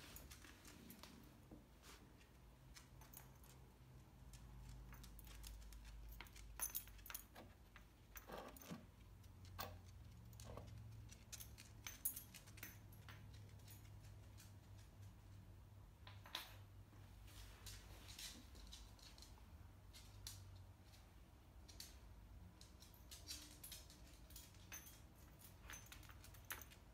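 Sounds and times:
collar tags jingling: 2.3s - 15.6s, 19.9s - 26.9s.

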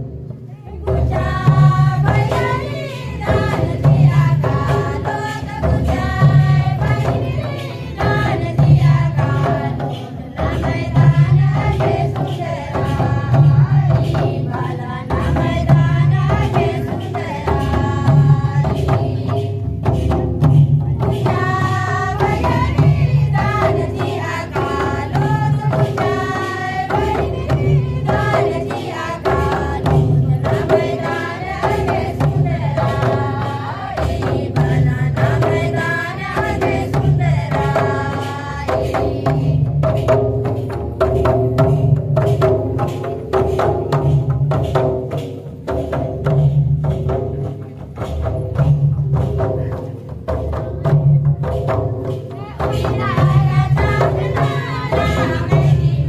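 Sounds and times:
steady drum beat: 0.0s - 56.0s
folk singing: 0.5s - 19.6s, 21.2s - 40.2s, 52.3s - 56.0s.

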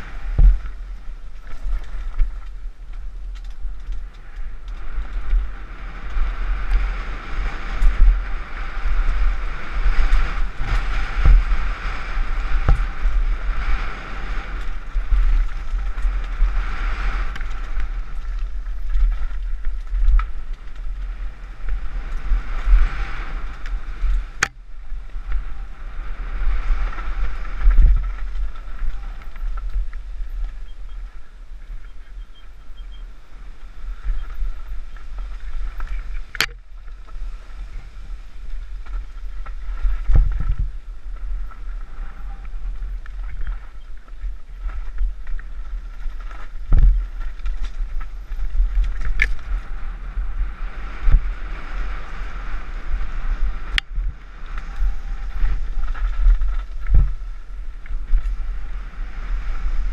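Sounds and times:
bike rattling and knocking: 0.0s - 25.6s
wind buffeting microphone: 0.0s - 59.9s.

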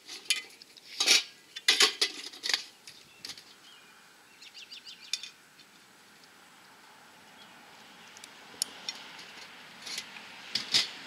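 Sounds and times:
metal pots clinking and knocking: 0.2s - 2.6s.

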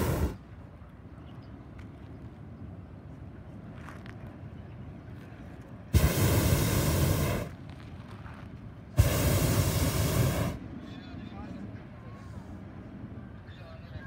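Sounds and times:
propane burner roaring: 0.0s - 0.4s, 5.9s - 7.5s, 9.0s - 10.6s.

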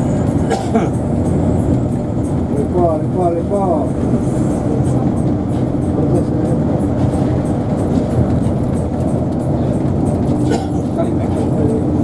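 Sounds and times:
vehicle road and engine noise: 0.0s - 12.0s.

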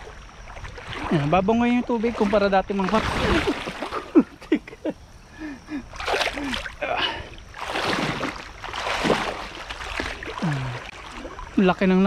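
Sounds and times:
water splashing from wading: 0.0s - 12.0s.

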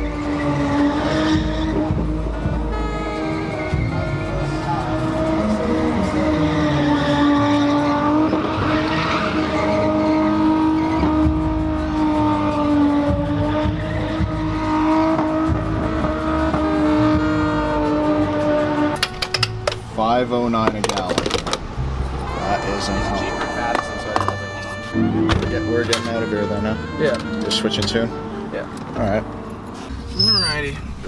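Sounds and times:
car engine revving high: 0.0s - 19.0s.

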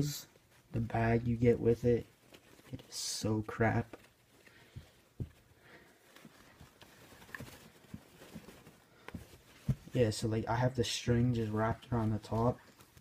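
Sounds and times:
fabric bag rustling: 0.4s - 10.4s.

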